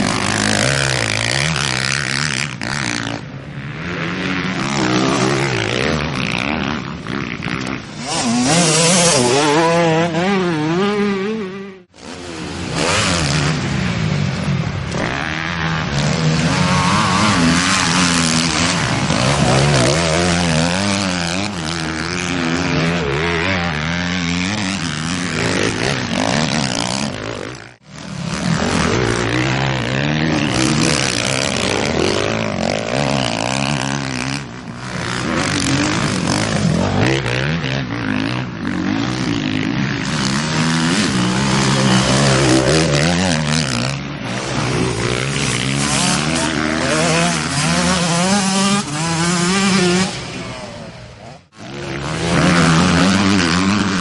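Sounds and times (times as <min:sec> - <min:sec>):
dirt bike engines revving: 0:00.0 - 0:54.0.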